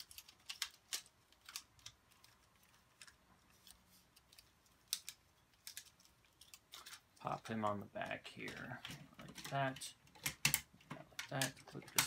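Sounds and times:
plastic toy parts clicking: 0.0s - 7.5s, 8.4s - 12.0s.

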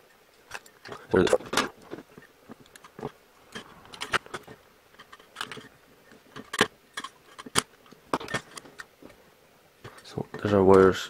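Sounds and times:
plastic model handling: 0.4s - 9.2s.

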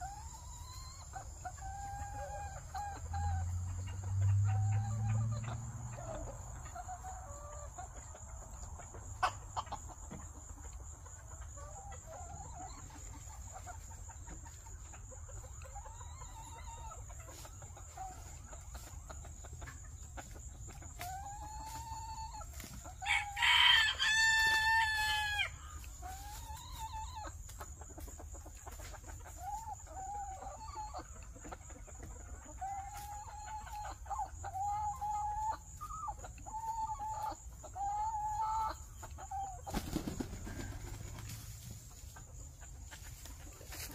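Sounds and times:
chicken calls: 0.0s - 43.9s
rooster crowing: 23.0s - 25.6s.

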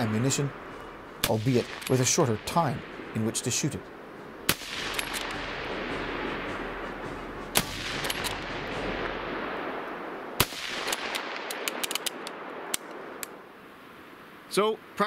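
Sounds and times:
steady rushing background noise: 0.0s - 15.0s
rifle shots: 1.2s - 3.2s, 4.5s - 6.6s, 7.5s - 9.6s, 10.4s - 12.6s
rifle bolt clicks: 4.8s - 5.4s, 8.0s - 8.4s, 10.8s - 13.4s.

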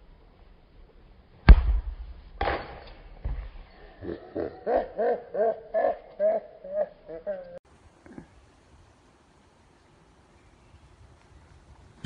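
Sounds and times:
man laughing: 4.0s - 7.6s.

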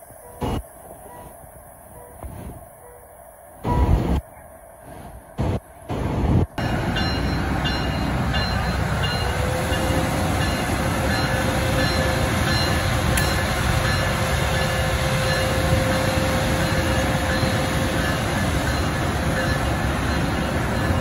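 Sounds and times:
locomotive engine running: 5.4s - 21.0s.

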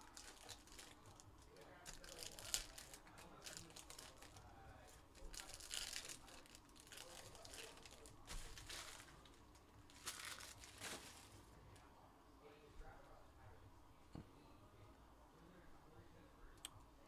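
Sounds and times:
foil wrappers crinkling and tearing: 0.0s - 11.6s.

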